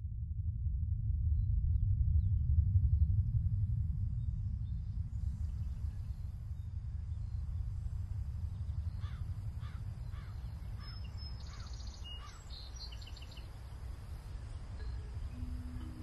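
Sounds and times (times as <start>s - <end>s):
steady low rumble: 0.0s - 16.0s
bird chirping: 8.8s - 13.6s
crow cawing: 9.0s - 12.4s
low steady tone: 13.4s - 16.0s.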